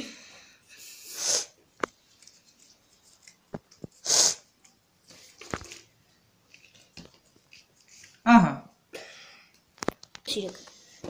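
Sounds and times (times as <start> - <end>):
person sniffing: 0.7 - 1.6, 3.9 - 4.5.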